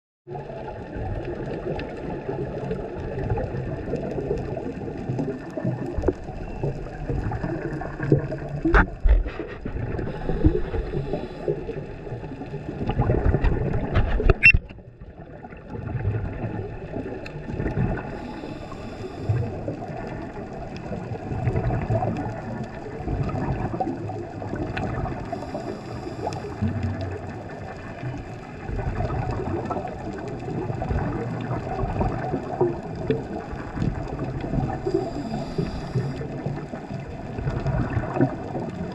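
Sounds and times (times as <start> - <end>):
underwater water sloshing: 0.3 - 38.9
sharp underwater clicks: 12.8 - 14.9.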